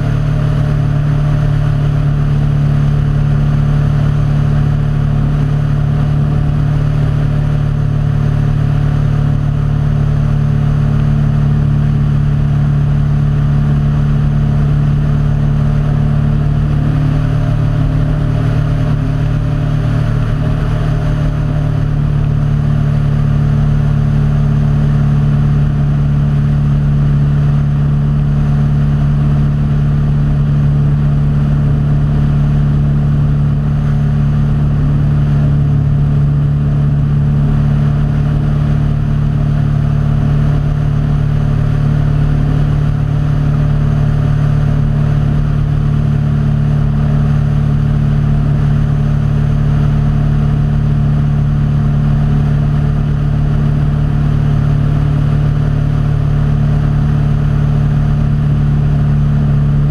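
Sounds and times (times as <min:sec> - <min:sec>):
small aircraft engine droning: 0:00.0 - 0:59.9.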